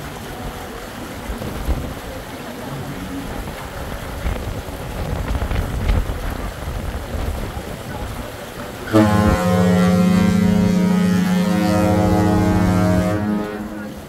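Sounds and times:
wind buffeting microphone: 0.3s - 9.5s.

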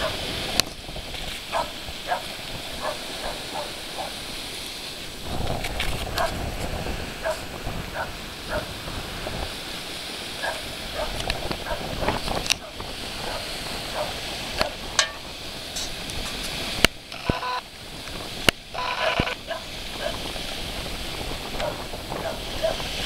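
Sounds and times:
surf rushing: 0.0s - 23.0s
wind on microphone: 0.0s - 23.0s
dog barking in high yips: 1.5s - 4.1s, 10.4s - 11.8s, 19.5s - 20.2s, 21.6s - 22.8s.

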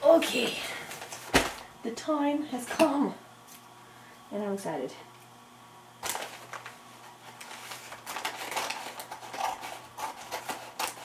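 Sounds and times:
tape and wrapping crinkling: 6.0s - 11.0s.

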